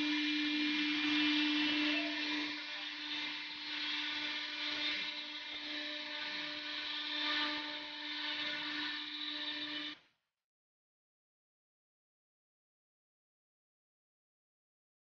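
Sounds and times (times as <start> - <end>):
end mill cutting sheet: 0.0 - 10.0
router spindle hum: 0.0 - 10.0.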